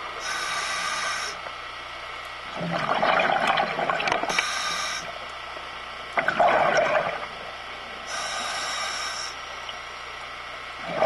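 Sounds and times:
regulator inhale hiss: 0.2s - 1.4s, 4.3s - 5.2s, 8.1s - 9.5s
exhaled breath bubbles: 2.6s - 5.2s, 6.2s - 7.3s, 10.8s - 11.0s.

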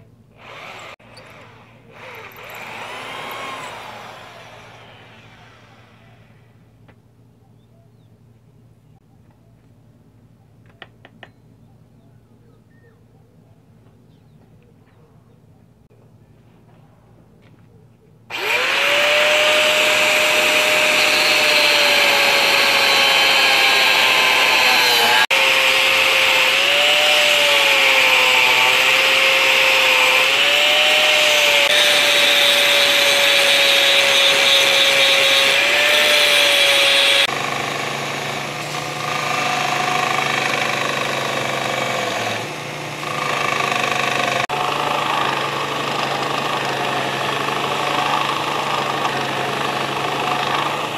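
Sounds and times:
angle grinder cutting steel: 0.4s - 6.5s, 18.3s - 50.9s
belt grinder grinding steel: 0.4s - 6.5s, 18.3s - 50.9s.

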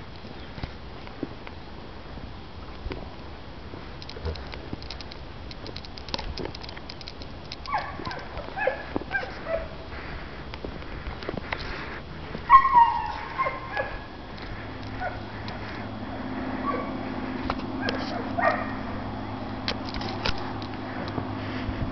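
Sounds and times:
light clicks and taps: 4.0s - 9.2s
dog yipping and whimpering: 7.7s - 9.8s, 12.5s - 14.1s, 14.9s - 15.3s, 16.6s - 17.0s.

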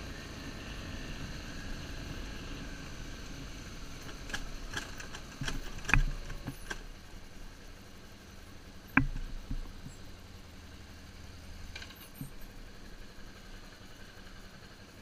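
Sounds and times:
motorcycle engine running: 0.0s - 15.0s
bike knocking and rattling over bumps: 3.3s - 10.4s, 11.6s - 13.0s.

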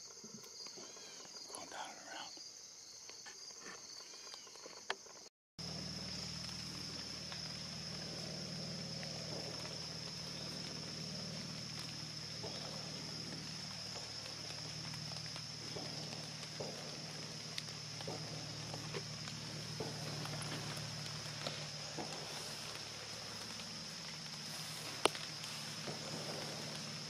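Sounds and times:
insects chirring: 0.0s - 27.0s
faint ticks: 4.0s - 27.0s
low steady hum: 5.6s - 27.0s.

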